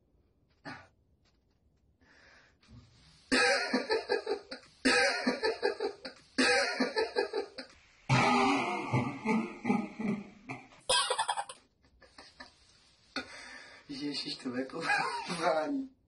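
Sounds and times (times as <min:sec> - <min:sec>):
person laughing hard: 0:10.9 - 0:11.6.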